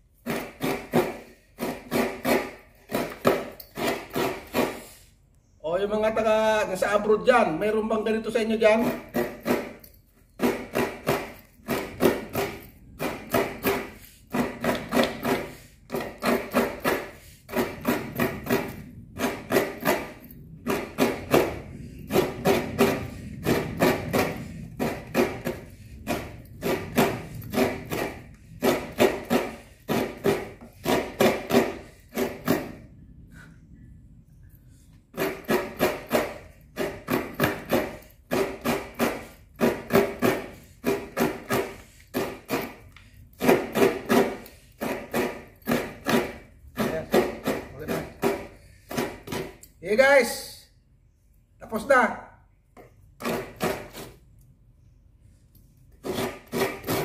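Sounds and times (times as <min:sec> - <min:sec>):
coconut rasping on grater: 0:00.2 - 0:05.0, 0:08.8 - 0:32.8, 0:35.1 - 0:49.4, 0:55.9 - 0:57.0.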